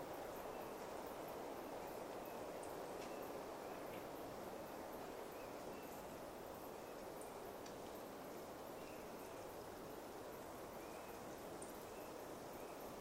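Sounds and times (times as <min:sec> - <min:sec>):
steady forest hiss: 0:00.0 - 0:13.0
faint bird chirps: 0:00.2 - 0:04.0, 0:05.2 - 0:07.4, 0:08.7 - 0:09.5, 0:10.4 - 0:13.0
faint high ticks: 0:02.6 - 0:03.2, 0:07.6 - 0:08.0.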